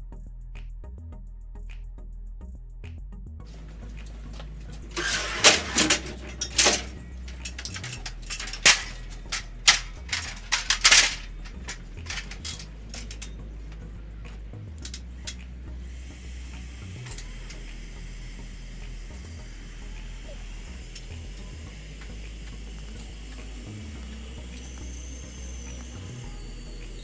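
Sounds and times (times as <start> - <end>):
low steady rumble: 0.0 - 27.0
metal clanks and rattles: 3.5 - 13.9.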